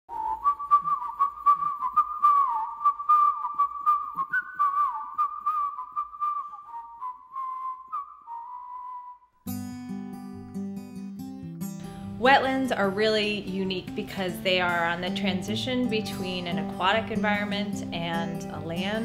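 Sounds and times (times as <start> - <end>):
warbling whistle-like tone: 0.1 - 9.4.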